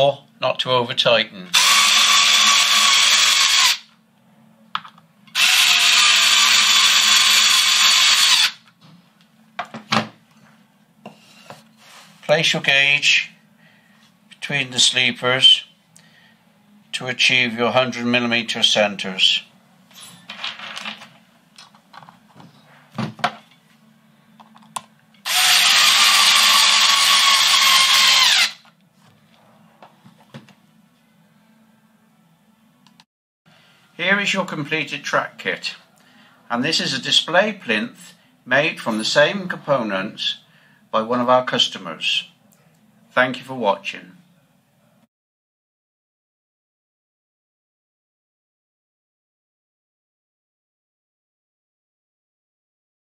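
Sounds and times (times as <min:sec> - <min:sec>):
drill driving screws: 0:01.5 - 0:03.9, 0:05.3 - 0:08.6, 0:25.3 - 0:28.6.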